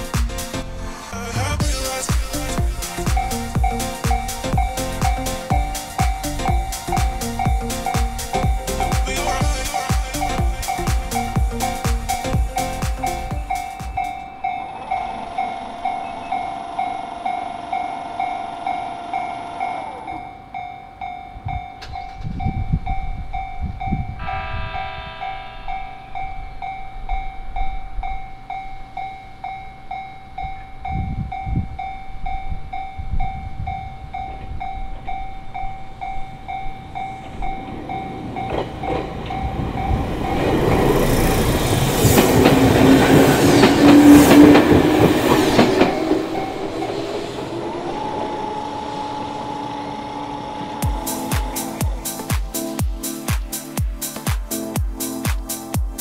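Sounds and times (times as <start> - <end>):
railway crossing warning bell: 2.8 - 52.2
train horn blast: 24.2 - 26.6
train wheels clacking over rails: 37.0 - 48.8.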